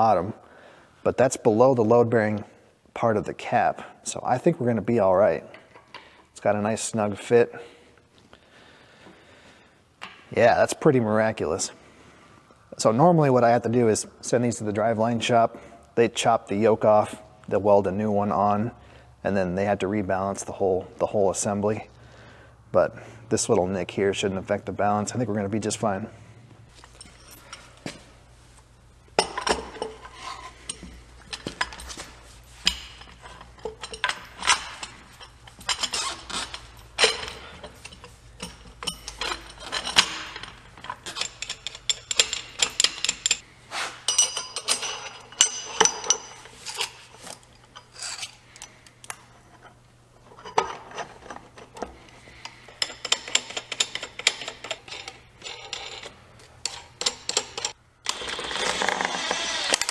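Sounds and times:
steel parts clinking and knocking: 0:26.7 - 0:28.0, 0:29.1 - 0:43.4, 0:44.1 - 0:59.0.

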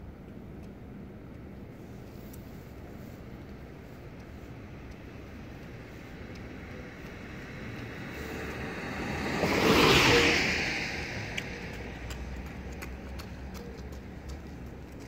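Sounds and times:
car passing by: 0:05.9 - 0:15.0.

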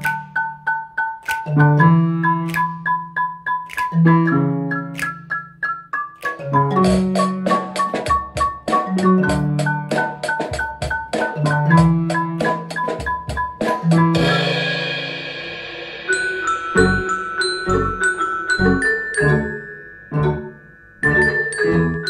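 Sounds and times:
marimba and glockenspiel melody: 0:00.0 - 0:22.0
drum kit steady beat: 0:06.8 - 0:18.0
cymbal wash: 0:14.2 - 0:17.7
low bass notes: 0:16.8 - 0:17.1.

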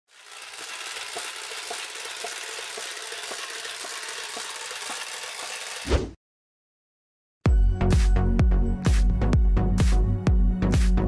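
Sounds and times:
toy motor and gears whirring: 0:00.1 - 0:05.9.

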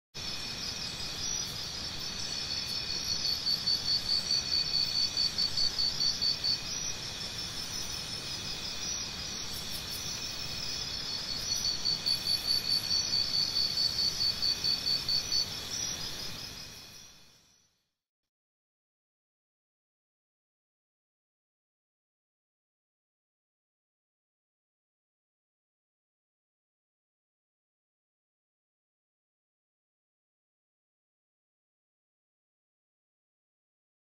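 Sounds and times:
crickets chirping: 0:00.2 - 0:17.8.

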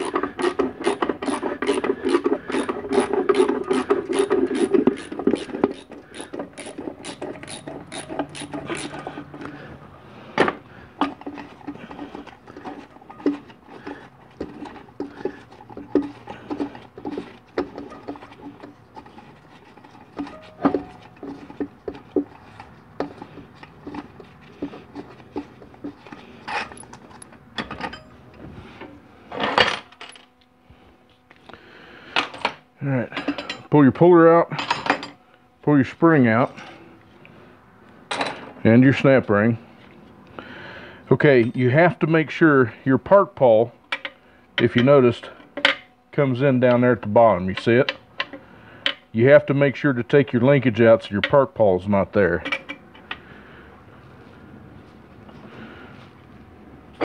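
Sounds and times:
ratchet wrench clicking: 0:00.0 - 0:09.0
metal clicks and scrapes: 0:00.0 - 0:09.6.

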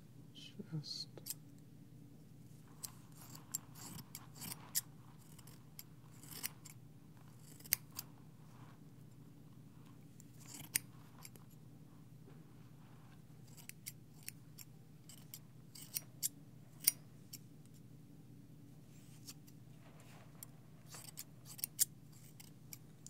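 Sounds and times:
scissors snipping: 0:02.8 - 0:06.8, 0:07.4 - 0:08.0, 0:13.5 - 0:17.4.

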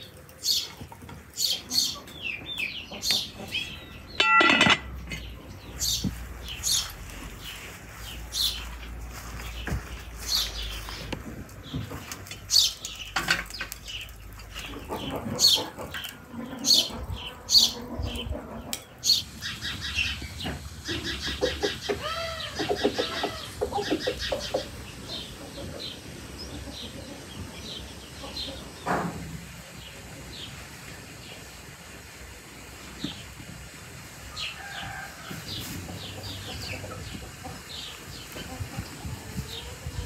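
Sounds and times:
small birds chirping: 0:00.0 - 0:04.3, 0:05.1 - 0:28.9
chicken clucking: 0:00.1 - 0:05.9, 0:14.2 - 0:29.0, 0:34.6 - 0:40.0.

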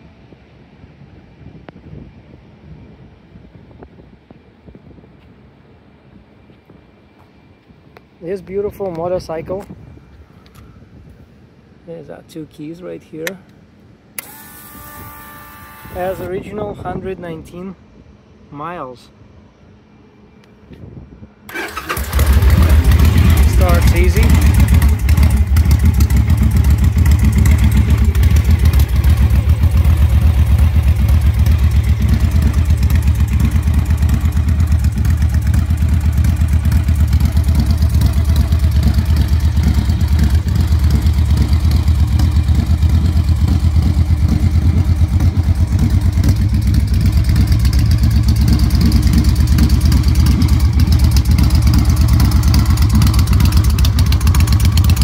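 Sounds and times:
motorcycle engine idling: 0:21.5 - 0:55.0.

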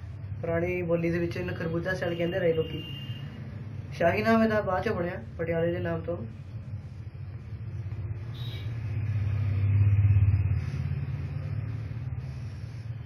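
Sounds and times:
steady low hum: 0:03.4 - 0:13.0.

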